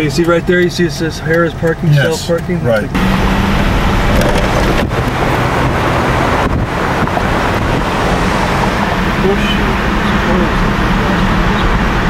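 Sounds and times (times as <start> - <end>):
low engine hum: 0.0 - 12.0
road noise: 0.0 - 12.0
wind rushing over microphone: 3.0 - 12.0.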